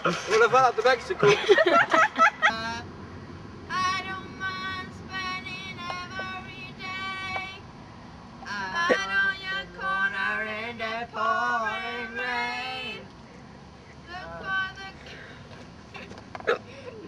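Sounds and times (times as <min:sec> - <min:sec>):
woman singing unaccompanied: 0:03.7 - 0:07.6, 0:08.4 - 0:13.1, 0:14.0 - 0:15.2.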